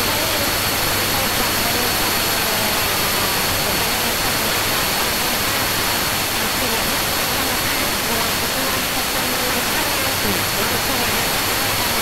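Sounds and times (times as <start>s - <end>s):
faint speech: 0.0s - 12.0s.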